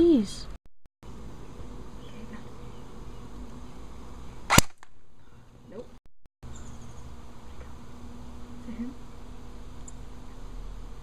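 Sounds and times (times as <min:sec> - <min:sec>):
airsoft gun shot: 0:04.5 - 0:05.1.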